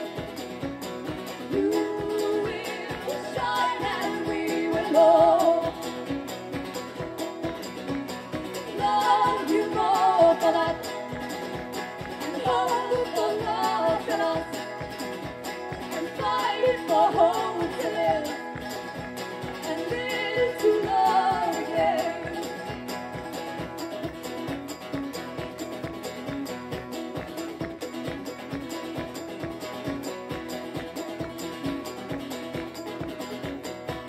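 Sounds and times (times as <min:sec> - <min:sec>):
acoustic guitar strumming: 0:00.0 - 0:34.0
person singing: 0:01.4 - 0:06.3, 0:08.6 - 0:23.3.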